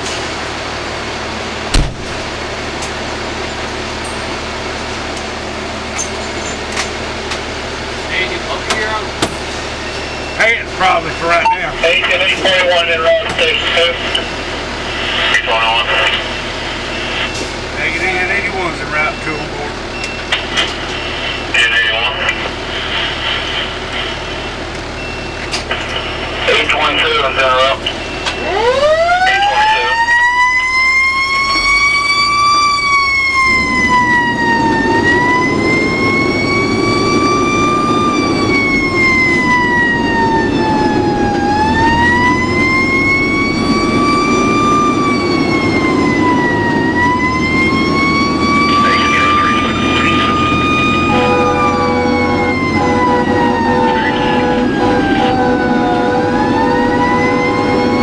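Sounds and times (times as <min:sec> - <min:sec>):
fire engine siren wailing: 0:00.0 - 0:58.0
truck engine running: 0:00.0 - 0:58.0
second steady tone: 0:48.7 - 0:57.9.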